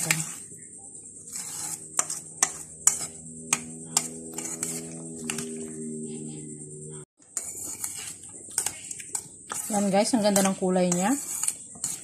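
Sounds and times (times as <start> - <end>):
steady held tone: 1.7 - 7.1.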